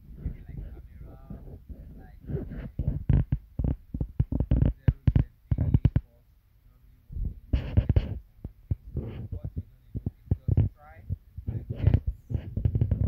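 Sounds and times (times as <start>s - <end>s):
person talking close to microphone: 0.2s - 2.9s, 4.5s - 6.1s, 9.0s - 12.4s.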